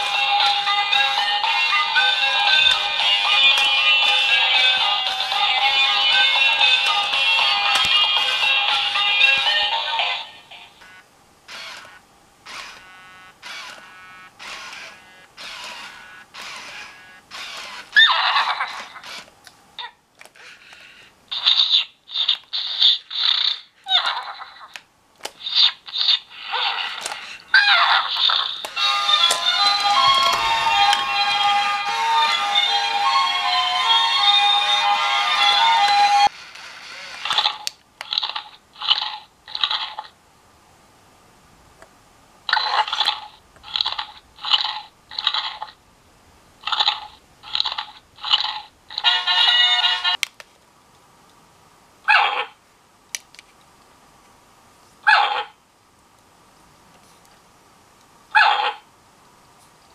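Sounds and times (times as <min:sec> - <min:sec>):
robot toy chirpy electronic bursts: 0:10.8 - 0:19.3, 0:20.4 - 0:24.2
toy motors whirring and clicking: 0:11.5 - 0:19.4, 0:20.2 - 0:30.5, 0:36.2 - 0:40.1, 0:42.6 - 0:45.8, 0:46.7 - 0:50.1.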